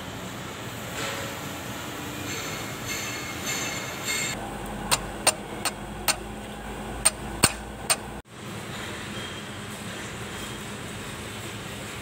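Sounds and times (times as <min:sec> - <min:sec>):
metal-on-metal clicks: 0:04.9 - 0:06.2, 0:07.0 - 0:08.1.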